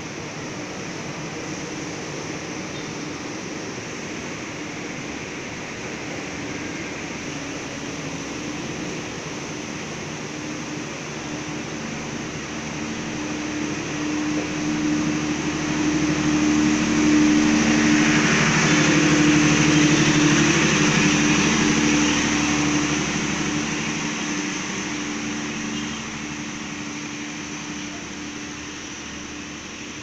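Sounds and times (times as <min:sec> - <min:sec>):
train mechanical hum: 0:00.0 - 0:30.0
train wheels on rails: 0:00.0 - 0:30.0.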